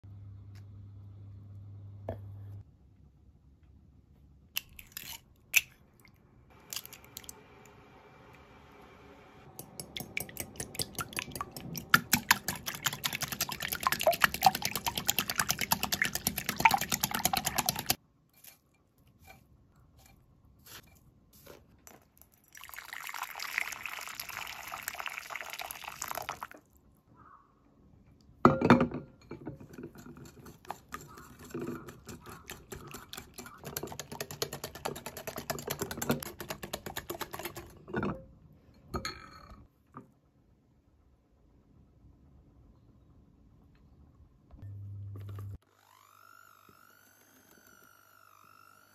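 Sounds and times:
liquid sloshing: 0:09.8 - 0:18.0.

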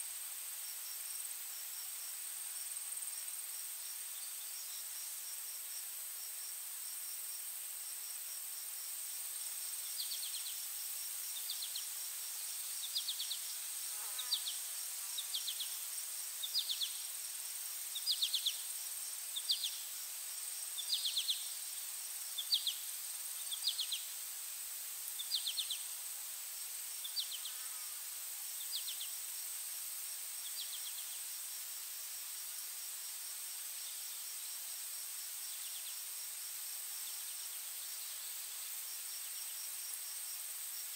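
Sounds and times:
insects droning: 0:00.0 - 0:40.9
insect pulsed chirps: 0:09.8 - 0:24.1, 0:25.2 - 0:25.8.

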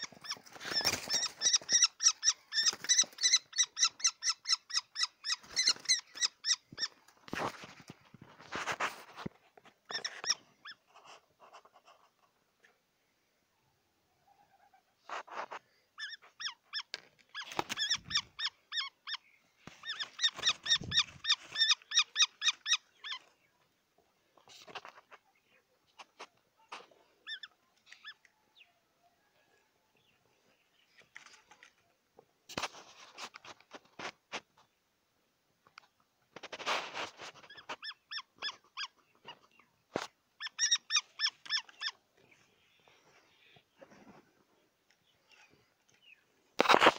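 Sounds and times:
brief rustle: 0:07.1 - 0:10.3, 0:32.5 - 0:34.6, 0:36.3 - 0:37.8, 0:46.6 - 0:46.9.

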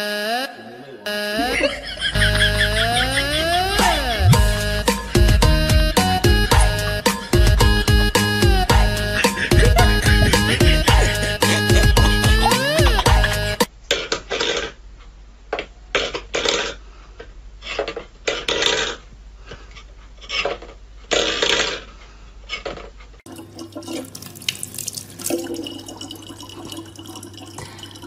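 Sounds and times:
tap water splashing into bottle: 0:23.6 - 0:26.8.

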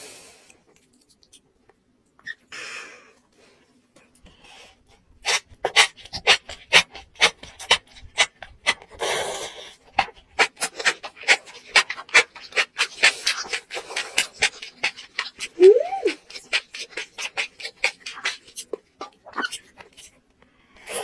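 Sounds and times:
close-up chewing: 0:04.8 - 0:21.0.

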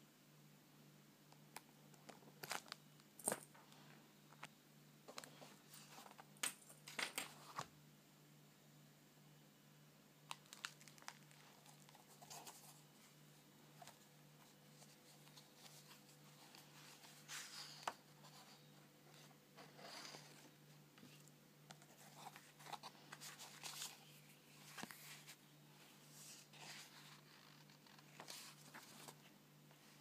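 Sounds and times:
low steady hum: 0:00.0 - 0:30.0
paper pages rustling: 0:10.3 - 0:30.0.

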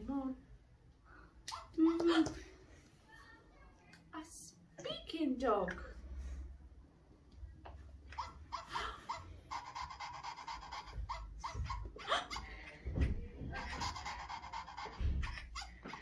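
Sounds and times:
toy dog yipping and barking: 0:08.1 - 0:12.5, 0:13.5 - 0:16.0
rapid electronic pulsing: 0:13.4 - 0:16.0.

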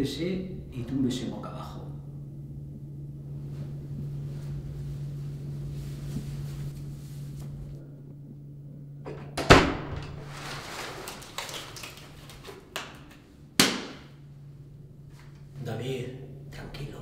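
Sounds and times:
steady low hum: 0:00.0 - 0:17.0
clothing rustling: 0:03.4 - 0:07.8, 0:10.1 - 0:12.8
loud knock: 0:13.6 - 0:14.1.

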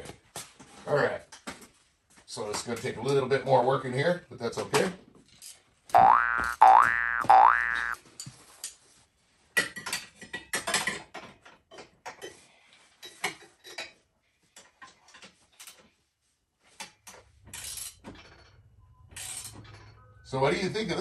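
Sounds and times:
rising boing sound effect: 0:06.0 - 0:08.0.

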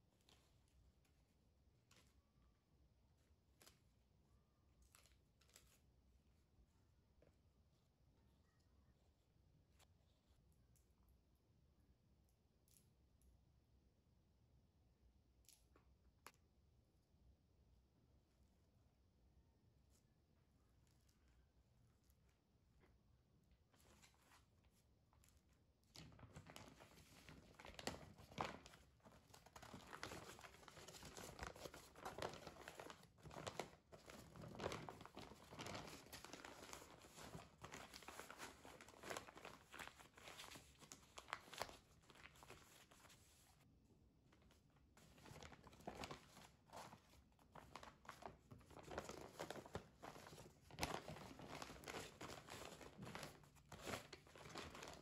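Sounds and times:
paper crinkling and rustling: 0:23.7 - 0:43.6, 0:44.4 - 0:55.0.

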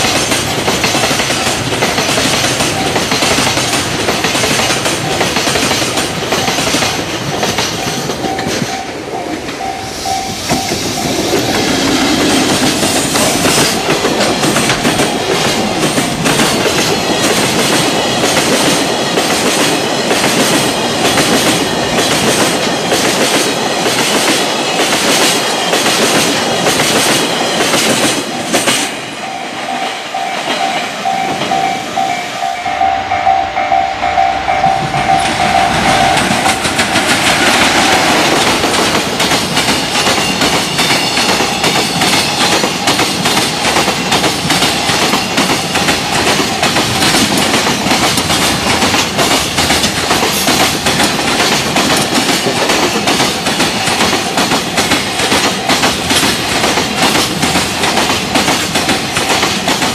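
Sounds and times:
train wheels clattering on rails: 0:00.0 - 0:32.9, 0:34.1 - 0:59.9
level crossing bell ringing: 0:29.2 - 0:36.6.

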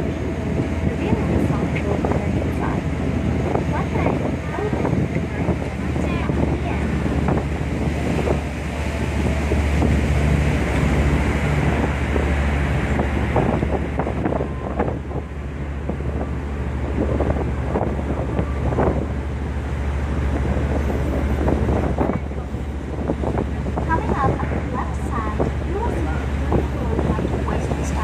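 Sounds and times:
boat engine drone: 0:00.0 - 0:28.0
wind on microphone: 0:00.0 - 0:28.0.

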